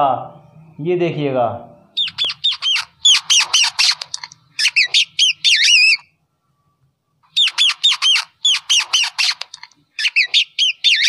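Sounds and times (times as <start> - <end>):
rat squeaking: 1.9 - 6.1, 7.2 - 11.0.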